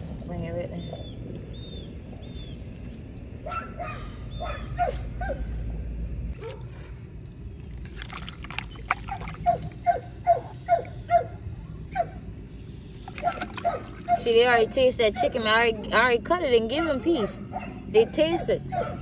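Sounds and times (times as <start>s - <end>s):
dog yipping: 3.4s - 5.4s, 8.7s - 12.2s, 13.2s - 14.3s, 17.0s - 19.0s.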